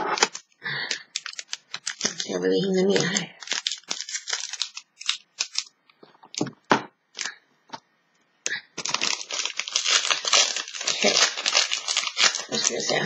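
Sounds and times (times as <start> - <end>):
foil wrapper crinkling: 0.1 - 5.8, 8.8 - 13.0.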